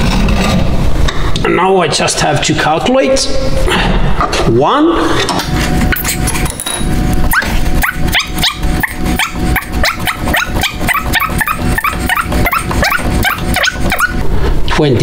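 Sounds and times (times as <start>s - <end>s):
metal part squeaking on threads: 7.3s - 14.2s.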